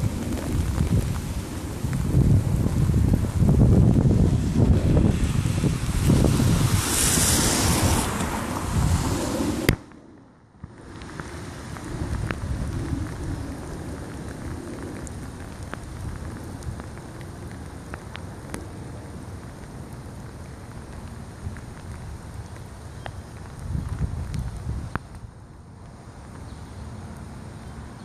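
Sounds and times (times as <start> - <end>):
wind gusting on microphone: 0.0 - 10.0, 10.6 - 20.1, 23.4 - 25.4
rain falling: 0.0 - 28.0.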